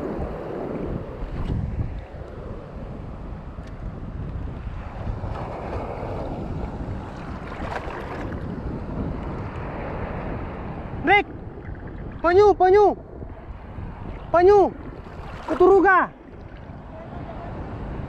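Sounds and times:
wind buffeting microphone: 0.0s - 18.0s
shallow sea water washing: 5.0s - 17.4s.

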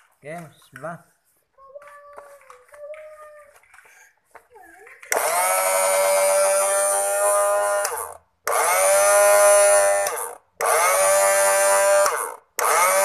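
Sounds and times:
blender motor whine: 5.1s - 13.0s.

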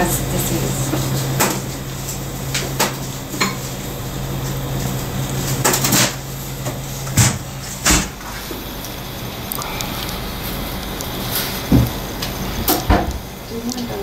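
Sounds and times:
low hum: 8.0s - 12.7s.

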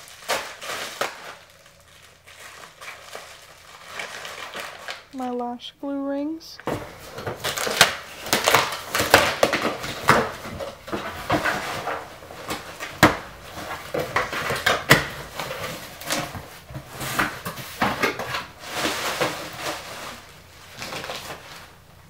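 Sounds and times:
cardboard box being torn open: 7.3s - 10.8s.

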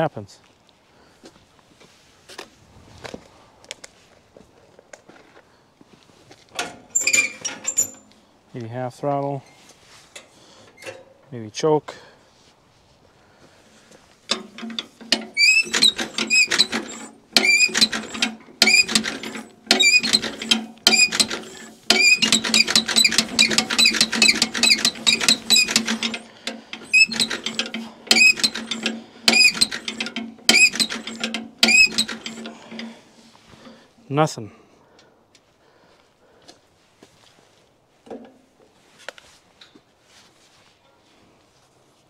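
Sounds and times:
starter cranking engine: 14.3s - 33.8s
repeating high squeak: 15.3s - 26.2s, 26.8s - 32.4s.

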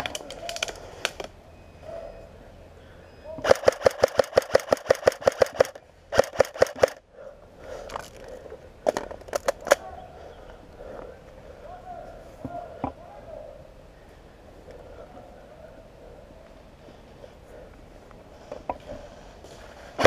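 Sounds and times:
airsoft rifle shots: 3.4s - 7.0s.

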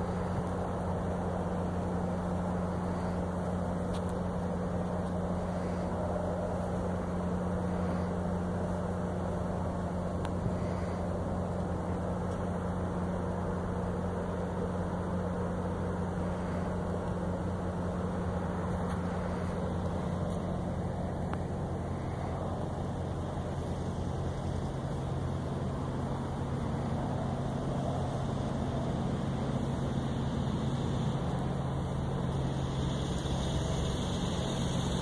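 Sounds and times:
car engine running: 0.0s - 35.0s.

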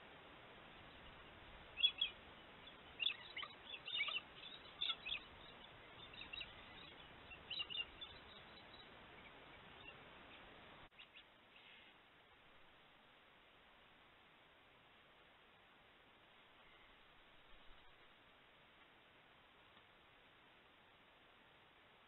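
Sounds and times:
steady hiss: 0.0s - 22.0s
galahs screeching: 3.0s - 5.5s.

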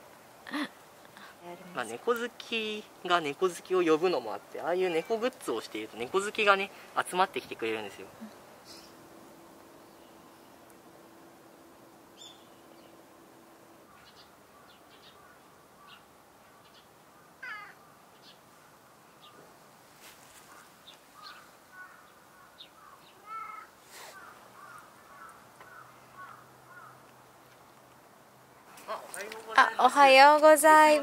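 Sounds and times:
animal cries: 4.8s - 5.3s, 17.4s - 17.8s, 22.9s - 27.0s
steady low hum: 6.7s - 16.4s.

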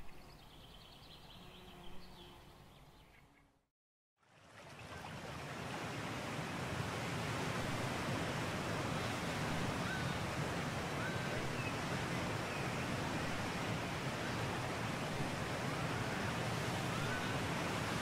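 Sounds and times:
sea surf washing on shore: 5.2s - 18.0s.

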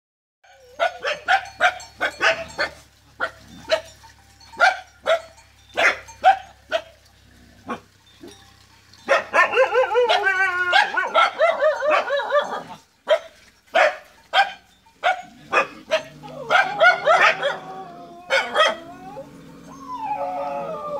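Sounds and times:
dogs high wavering cries: 0.4s - 7.0s, 9.0s - 20.9s
dogs barking: 0.5s - 7.0s, 7.6s - 8.4s, 9.0s - 19.3s.

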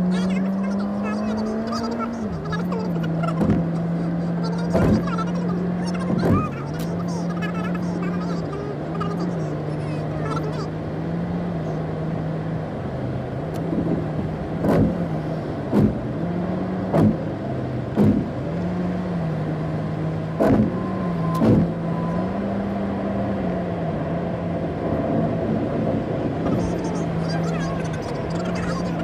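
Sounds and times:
car road and engine noise: 0.0s - 29.0s
sharp thumps: 14.6s - 15.0s, 15.7s - 16.0s, 16.9s - 17.2s, 17.9s - 18.4s, 20.4s - 21.8s.

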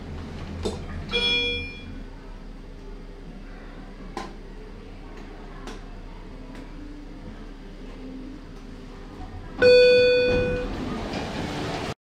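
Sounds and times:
low steady hum: 0.0s - 11.7s
lift chime ding: 1.1s - 2.0s, 9.6s - 10.8s.

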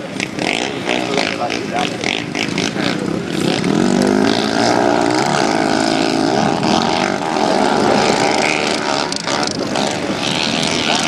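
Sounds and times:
quad engines revving: 0.0s - 11.0s.

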